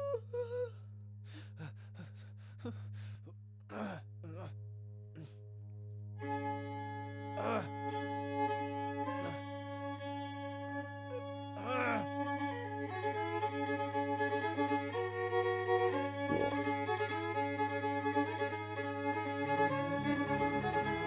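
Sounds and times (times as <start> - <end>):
bowed string chord: 4.1 - 11.6, 12.2 - 21.0
low drone: 16.3 - 16.9, 18.3 - 21.0.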